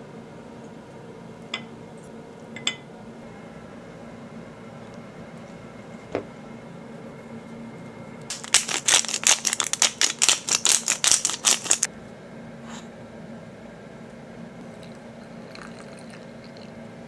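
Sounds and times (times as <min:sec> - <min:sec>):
salt shaker rattling: 0:08.3 - 0:11.9.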